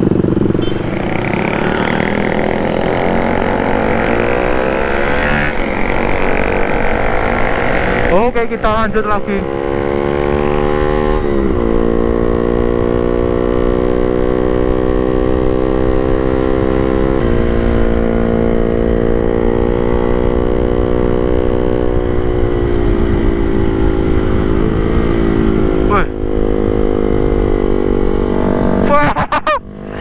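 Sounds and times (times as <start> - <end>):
motorcycle engine running: 0.0 - 30.0
wind rumbling on microphone: 17.2 - 28.8.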